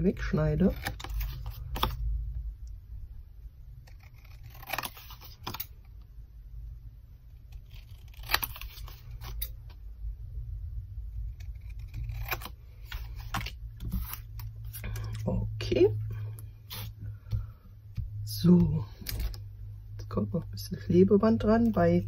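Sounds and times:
scissors snipping paper: 0.6s - 2.0s, 3.8s - 5.7s, 7.5s - 9.6s, 11.3s - 15.2s
paper handling: 12.0s - 15.2s, 18.9s - 19.4s.

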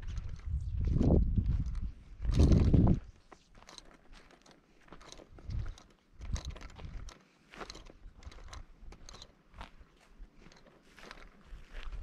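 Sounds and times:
footsteps on dry grass and dirt: 0.0s - 12.0s.

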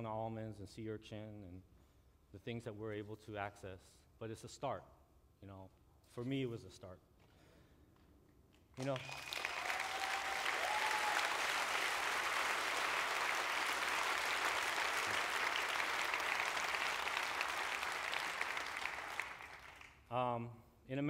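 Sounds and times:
audience applauding: 8.8s - 20.0s.

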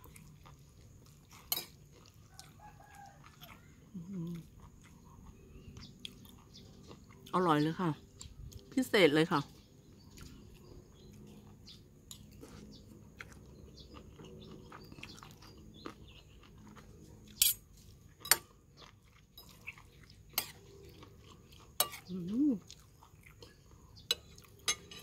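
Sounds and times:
quiet chewing: 0.0s - 8.8s, 9.4s - 25.0s
spoon and fork clinking on bowl: 18.2s - 18.5s, 21.8s - 22.1s, 24.1s - 25.0s.

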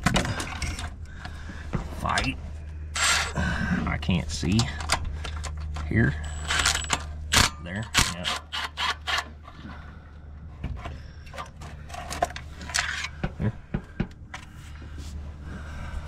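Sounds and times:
steady low hum: 0.0s - 16.0s
tools clicking and scraping on metal: 3.0s - 3.4s, 4.4s - 9.6s, 11.2s - 13.3s.

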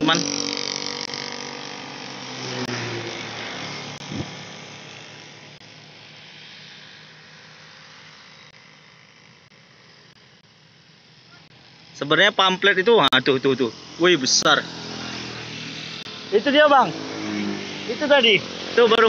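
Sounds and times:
passing vehicle engine: 0.0s - 5.6s, 13.4s - 19.0s.

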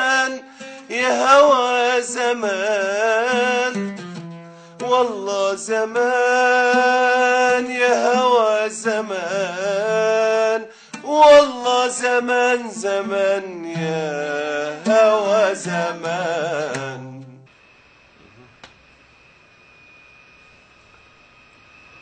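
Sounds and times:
man singing: 0.0s - 4.0s, 4.8s - 17.5s
oud playing: 0.0s - 10.4s, 11.0s - 17.5s.

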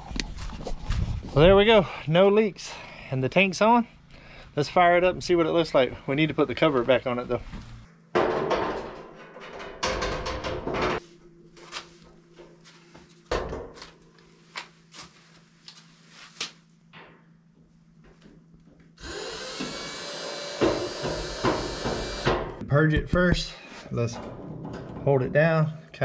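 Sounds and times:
low steady hum: 0.0s - 26.0s
metal heater cover clattering: 8.2s - 11.0s, 24.1s - 25.2s.

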